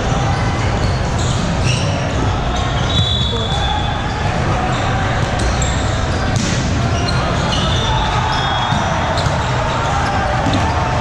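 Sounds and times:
many voices echoing: 0.0s - 11.0s
sneakers squeaking on floor: 0.1s - 11.0s
volleyballs struck and bouncing: 6.2s - 11.0s.

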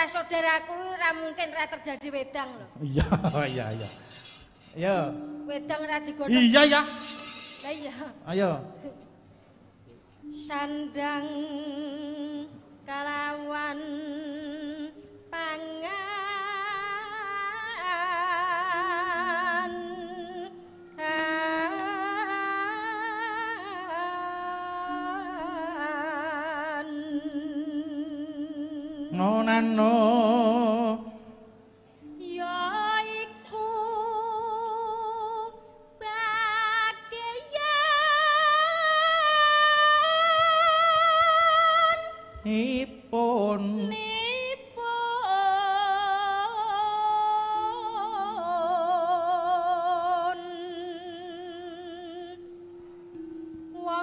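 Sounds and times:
woman singing with vibrato: 0.0s - 2.8s, 4.2s - 9.1s, 10.2s - 54.0s
low held tone: 3.2s - 7.9s, 18.5s - 34.9s, 47.6s - 54.0s.

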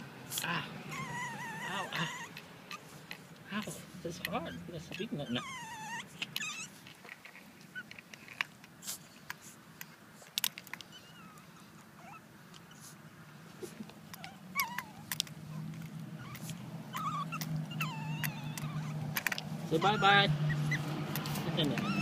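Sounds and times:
puppy squeaks and whines: 0.9s - 3.0s, 4.2s - 8.0s, 10.8s - 13.0s, 13.6s - 22.0s.

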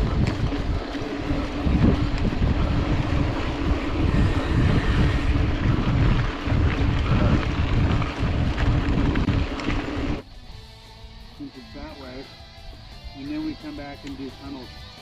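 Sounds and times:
mountain bike rattling on rough trail: 0.0s - 10.2s
wind buffeting microphone: 0.0s - 10.2s.

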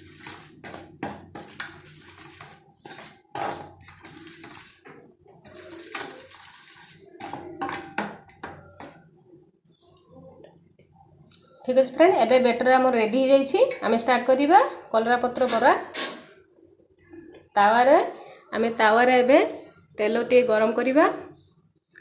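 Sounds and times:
spoon stirring batter in steel bowl: 0.0s - 11.1s.

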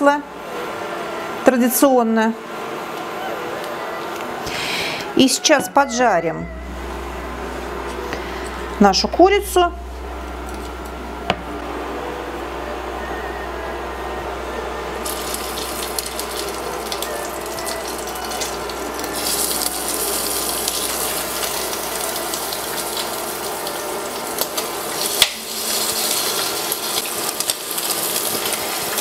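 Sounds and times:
chicken sizzling in frying pan: 15.0s - 29.0s.

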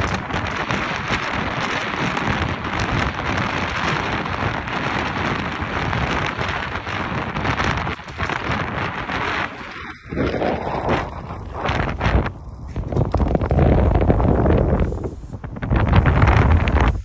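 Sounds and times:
wind rumbling on microphone: 0.0s - 17.0s
spray paint can hissing: 13.7s - 15.5s.

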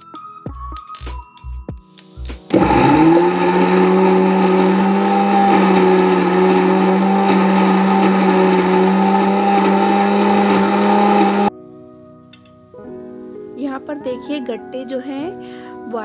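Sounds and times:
rattling grind of contents: 2.5s - 11.1s
mixer grinder motor hum: 2.5s - 11.5s.

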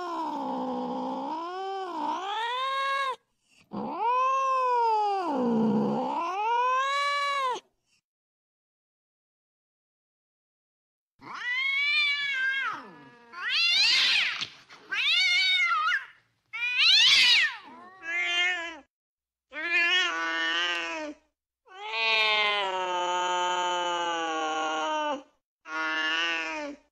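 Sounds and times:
cats yowling: 0.0s - 7.6s, 11.2s - 18.9s.

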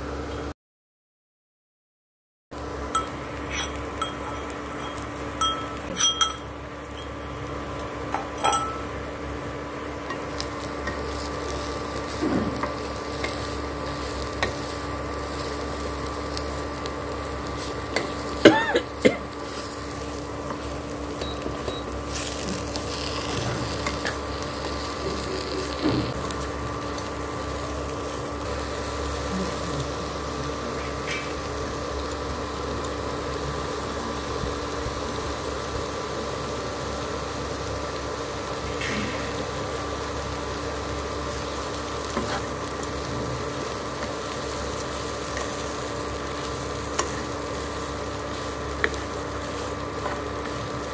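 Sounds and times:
steady hum: 2.6s - 50.9s
vegetables sizzling in a pan: 2.6s - 50.9s
spatula scraping a pan: 22.1s - 26.2s, 42.1s - 42.6s.

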